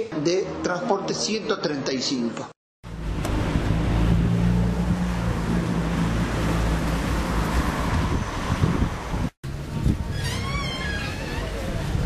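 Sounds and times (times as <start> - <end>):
car engine hum: 2.8 - 9.8
tyre and wind noise: 6.7 - 12.0.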